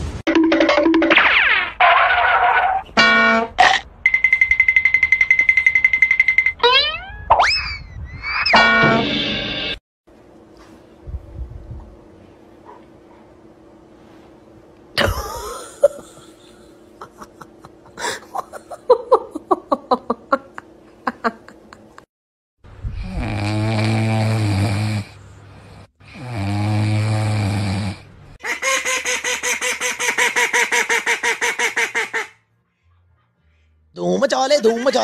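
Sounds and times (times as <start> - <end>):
puppy snoring: 22.9 - 25.2, 26.1 - 28.1
duck quacking rapidly: 28.4 - 32.4.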